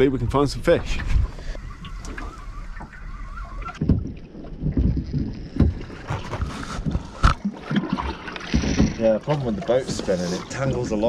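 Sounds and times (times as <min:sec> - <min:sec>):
water slapping against boat hull: 0:00.8 - 0:11.0.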